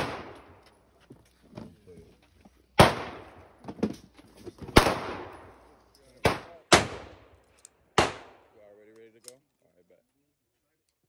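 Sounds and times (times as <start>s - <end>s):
loud gunshots with echo: 0.0s - 0.5s, 2.8s - 3.4s, 4.8s - 5.5s, 6.2s - 7.3s, 8.0s - 8.5s
faint gunshots: 0.0s - 0.6s, 2.8s - 3.6s, 4.7s - 5.6s, 6.2s - 7.3s, 8.0s - 8.5s.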